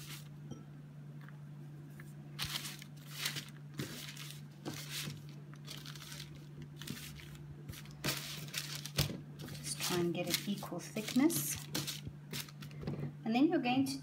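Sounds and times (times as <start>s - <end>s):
dough rustling on tray liner: 0.0s - 0.4s, 1.9s - 12.8s
steady low hum: 0.0s - 14.0s.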